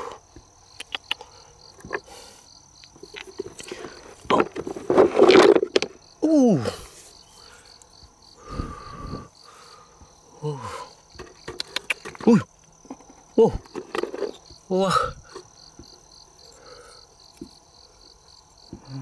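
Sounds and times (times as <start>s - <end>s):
insects chirping: 0.0s - 19.0s
rocks scraping and knocking: 2.9s - 6.0s, 11.1s - 14.6s.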